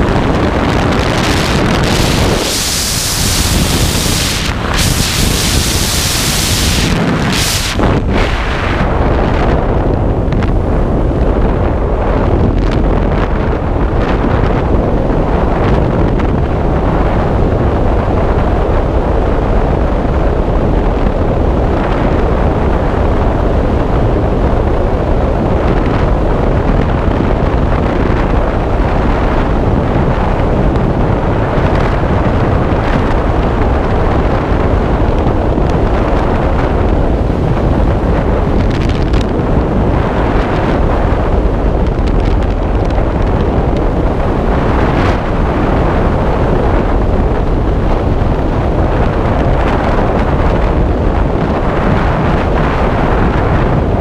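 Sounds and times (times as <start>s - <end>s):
loud rushing wind noise: 0.0s - 54.0s.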